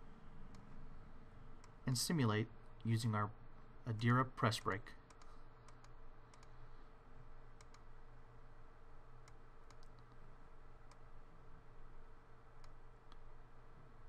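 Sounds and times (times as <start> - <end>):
faint electrical hum: 0.0 - 14.0
computer mouse clicking: 4.6 - 6.6, 7.5 - 7.9, 9.2 - 11.1, 12.6 - 13.3.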